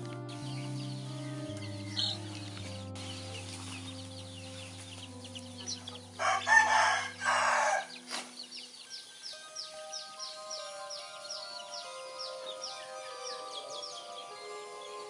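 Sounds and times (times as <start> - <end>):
soft background music: 0.0 - 15.0
rooster crowing: 6.2 - 8.0.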